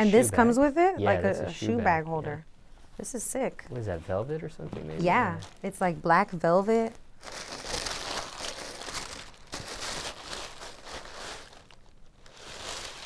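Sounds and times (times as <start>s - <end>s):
tissue paper rustling and crinkling: 7.2s - 13.0s.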